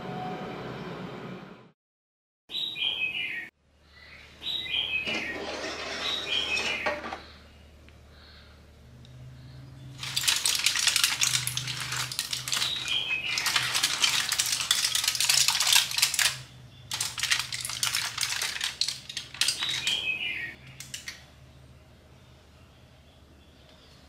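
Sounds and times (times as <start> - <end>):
aluminium foil crinkling: 10.0 - 20.0.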